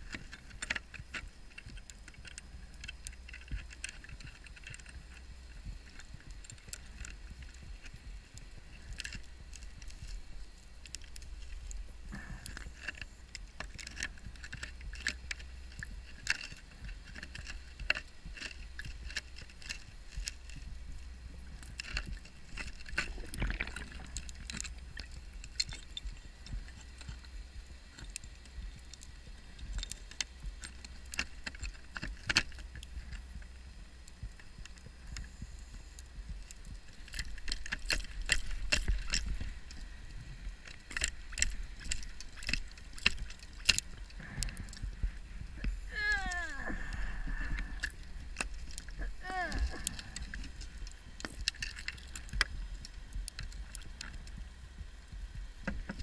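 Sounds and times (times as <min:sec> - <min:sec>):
sharp clicks and crackles: 0:00.0 - 0:56.0
low underwater rumble: 0:38.1 - 0:56.0.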